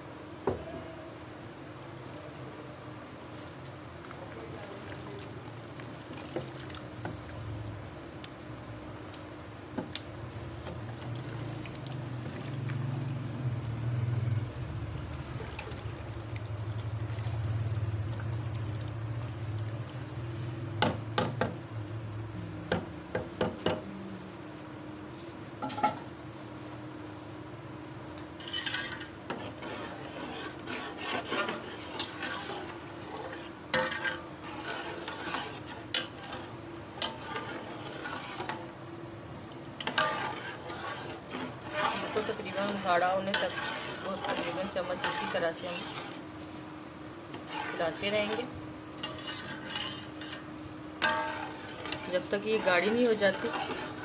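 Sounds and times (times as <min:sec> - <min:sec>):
ladle scraping a metal pot: 0:28.4 - 0:38.6, 0:39.8 - 0:46.6, 0:47.3 - 0:54.0.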